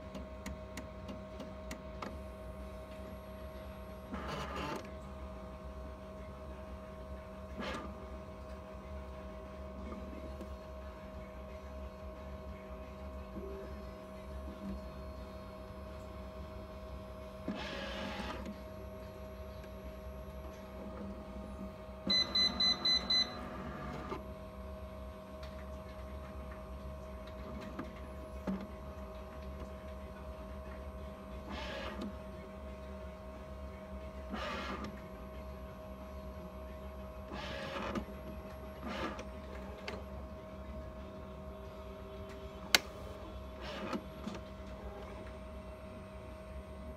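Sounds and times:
electrical hum: 0:00.0 - 0:46.9
quick beeps: 0:22.1 - 0:23.4.

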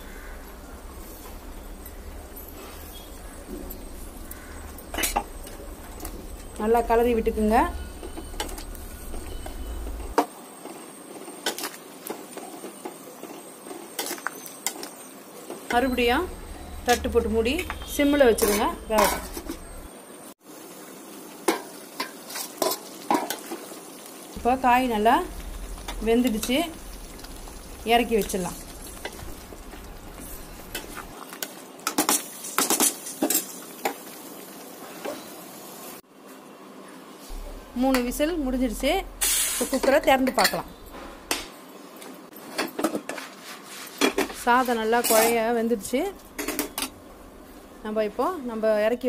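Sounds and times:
low background hum: 0:00.0 - 0:10.2, 0:15.7 - 0:20.0, 0:24.3 - 0:31.2, 0:37.3 - 0:41.5
metal spoon scraping a pot: 0:17.6 - 0:19.7.

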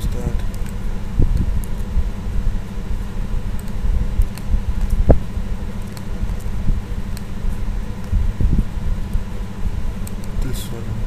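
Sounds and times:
low rumbling background noise: 0:00.0 - 0:11.0
light clicks: 0:03.5 - 0:05.2, 0:10.0 - 0:10.5.

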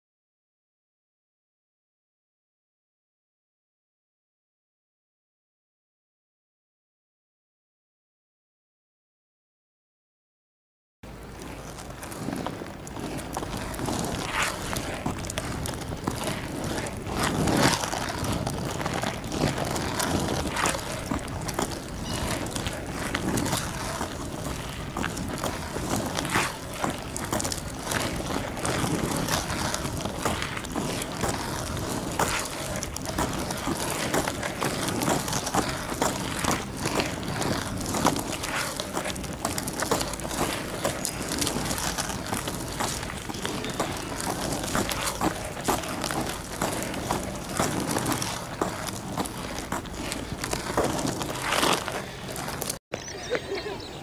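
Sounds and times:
skate wheels rolling on asphalt: 0:11.0 - 0:54.0
skate clicks and scuffs: 0:11.1 - 0:52.8.

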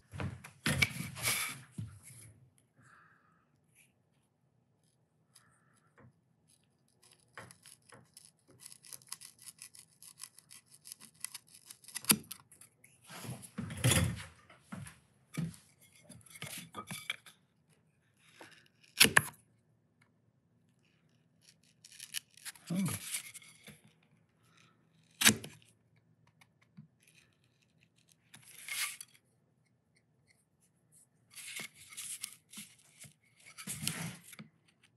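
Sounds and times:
chisel scraping through wood: 0:06.6 - 0:13.3, 0:15.4 - 0:17.3, 0:21.3 - 0:25.6.

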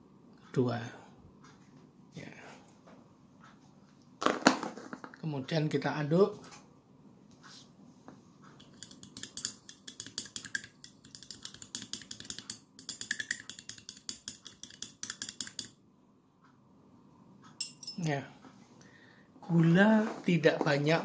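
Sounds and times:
spoon clinking against glass: 0:08.7 - 0:15.8, 0:17.6 - 0:18.1.

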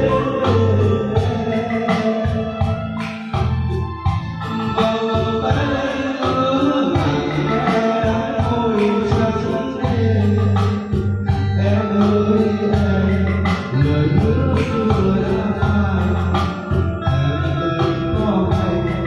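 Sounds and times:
backing music track: 0:00.0 - 0:19.0
man singing karaoke: 0:00.0 - 0:19.0.

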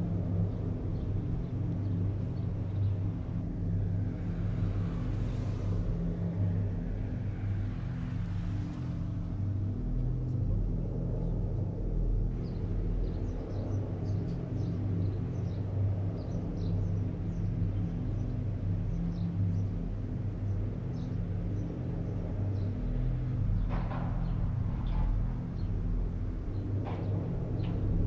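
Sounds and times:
low rumble: 0:20.4 - 0:28.0.

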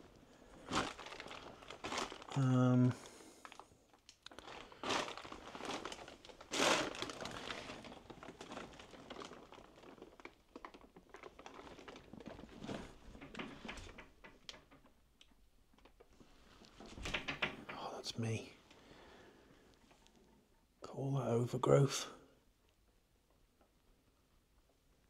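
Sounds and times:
plastic sheeting crinkling: 0:00.0 - 0:14.9.

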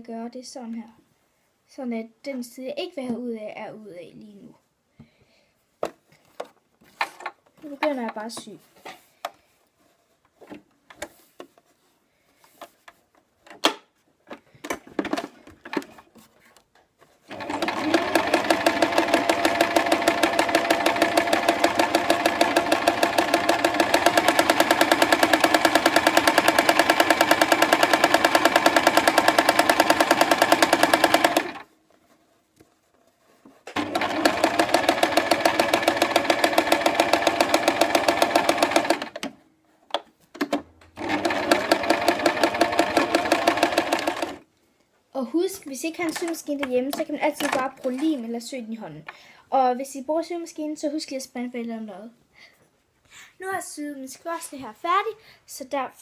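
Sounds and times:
sewing machine stitching: 0:17.3 - 0:31.7, 0:33.7 - 0:39.4, 0:40.4 - 0:44.4.

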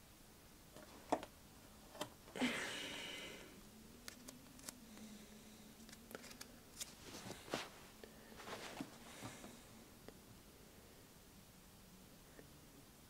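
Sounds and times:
paper rustle: 0:05.8 - 0:09.3.

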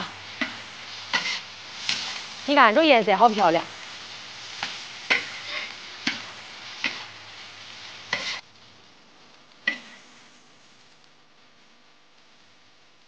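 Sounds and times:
meat sizzling in a wok: 0:00.0 - 0:13.0
metal spatula knocking wok: 0:09.6 - 0:10.0.

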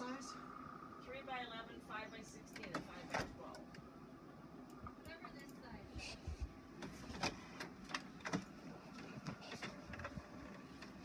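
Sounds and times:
inkjet printer whirring and clicking: 0:06.7 - 0:11.0.

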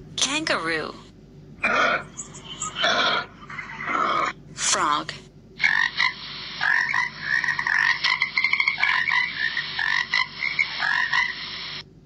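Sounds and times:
frog croaking: 0:05.6 - 0:11.8.

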